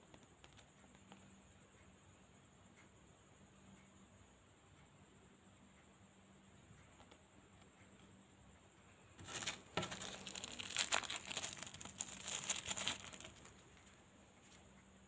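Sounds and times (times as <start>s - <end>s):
wrapper crinkling: 9.2s - 13.9s.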